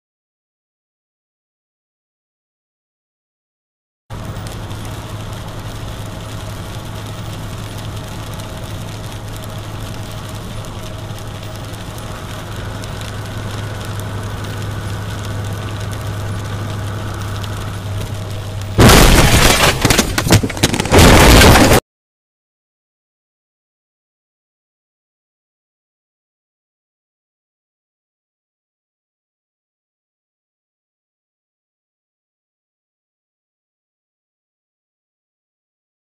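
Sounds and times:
road and engine hum: 4.1 - 21.4
vehicle collision crash: 18.8 - 21.8.

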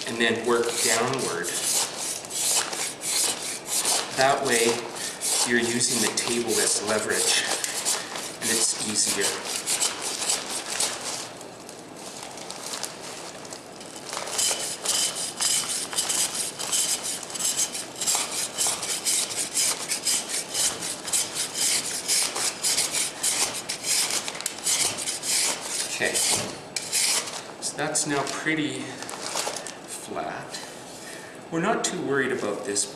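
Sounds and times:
rasp scraping plaster: 0.2 - 11.2, 14.2 - 27.4.

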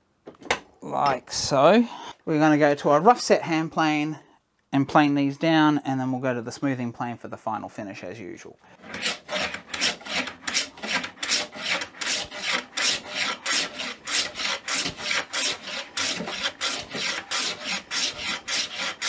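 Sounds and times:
hand plane shaving wood: 8.8 - 19.0.

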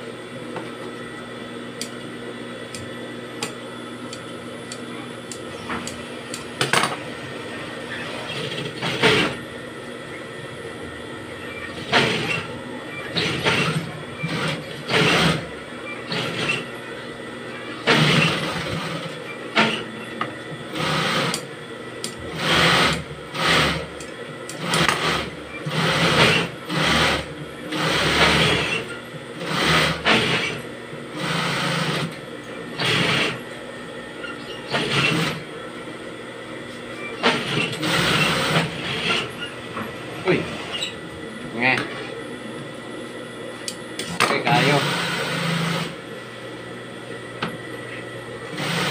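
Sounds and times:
motor hum: 0.0 - 48.9
sewing machine stitching: 8.0 - 9.4, 11.6 - 16.7, 17.8 - 19.9, 20.7 - 21.4, 22.2 - 23.9, 24.5 - 30.6, 31.2 - 32.2, 32.8 - 33.4, 34.4 - 35.4, 37.1 - 39.4, 48.5 - 48.9.

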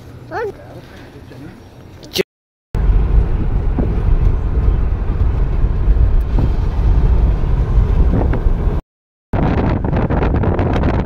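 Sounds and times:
car cabin road and engine rumble: 2.8 - 8.8.

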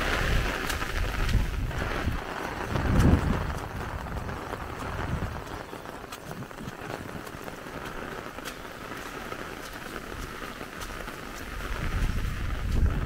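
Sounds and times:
footsteps on wet muddy ground: 0.0 - 13.0
steady rain falling: 0.0 - 13.0
drops ticking close by: 2.6 - 12.1.

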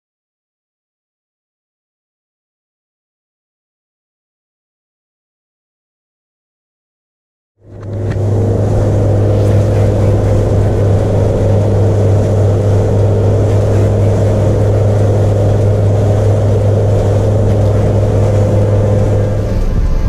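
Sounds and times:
outboard motor humming: 7.6 - 20.0
wind and water rushing: 7.7 - 20.0.

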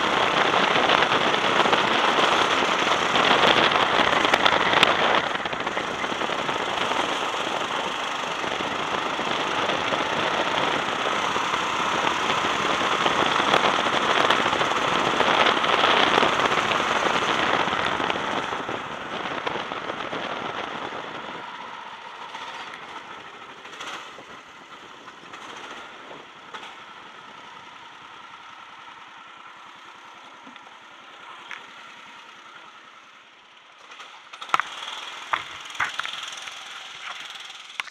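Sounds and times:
wind rush: 0.0 - 22.0
go-kart engine: 0.0 - 37.9
sharp clicks: 34.0 - 37.9.

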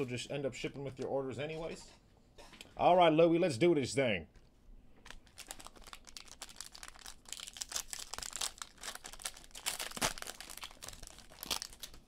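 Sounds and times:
foil wrapper tearing and crinkling: 5.0 - 12.0.

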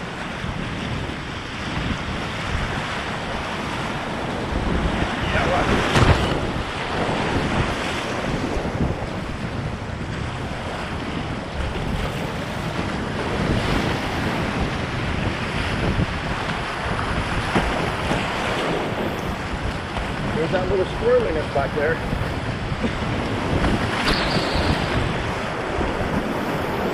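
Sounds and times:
whitewater rushing and crashing: 0.0 - 26.9
wind buffeting microphone: 0.0 - 26.9
paddle strokes splashing: 16.2 - 26.9.

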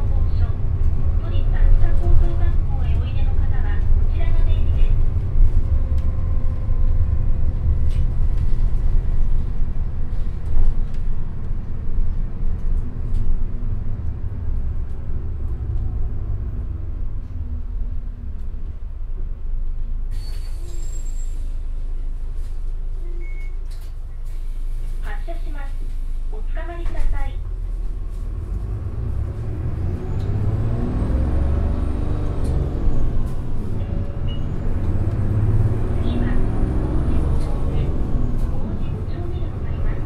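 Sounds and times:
bus diesel engine and road rumble: 0.0 - 40.0
air brake hiss: 20.1 - 21.7.

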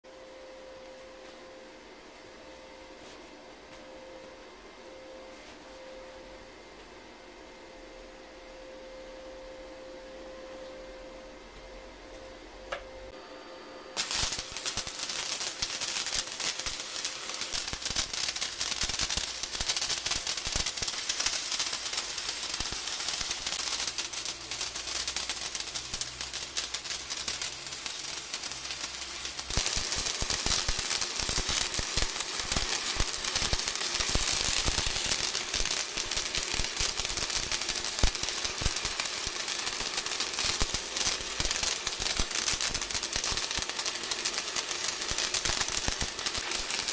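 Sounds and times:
welding arc crackling and sizzling: 14.0 - 46.9.

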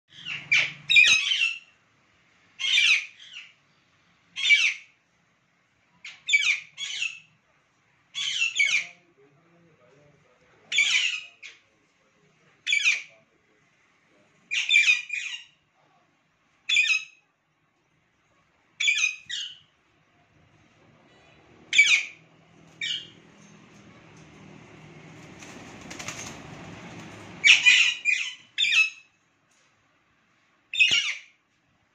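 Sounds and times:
parakeets squawking: 0.1 - 1.7, 2.6 - 3.5, 4.4 - 4.9, 8.2 - 9.0, 10.7 - 11.5, 18.8 - 19.6, 21.2 - 23.3, 27.3 - 29.1, 30.8 - 31.3.

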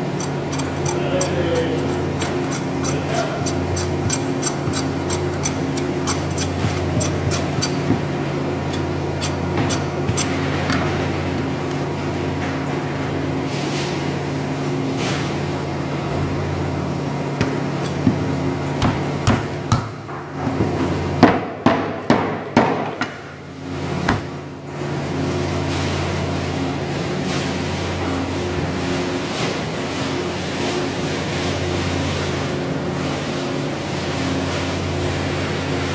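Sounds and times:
cleaver chopping ribs: 0.0 - 10.4, 17.4 - 20.0
steady hum: 0.0 - 29.3.

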